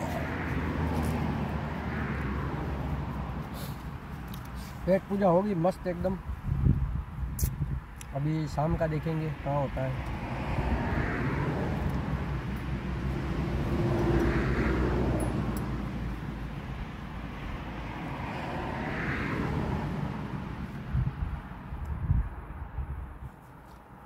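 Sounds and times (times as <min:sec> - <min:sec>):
vehicles passing: 0:00.0 - 0:24.0
wind rumble on microphone: 0:06.0 - 0:08.0, 0:20.8 - 0:23.5.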